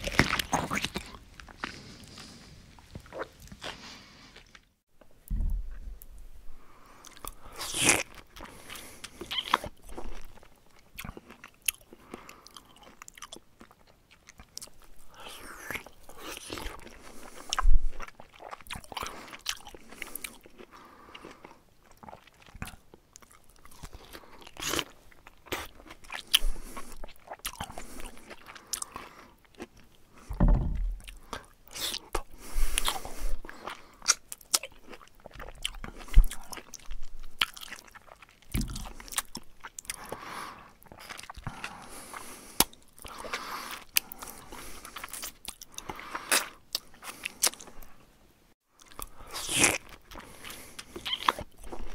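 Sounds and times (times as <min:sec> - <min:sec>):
bear chewing and crunching food: 0:00.0 - 0:04.8
low thumps: 0:05.2 - 0:06.4, 0:30.3 - 0:31.1.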